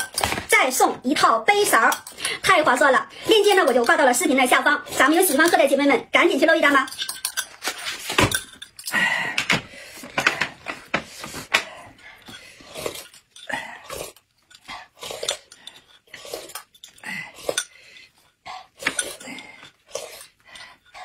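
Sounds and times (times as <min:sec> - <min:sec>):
slurping sips: 0:12.5 - 0:20.9.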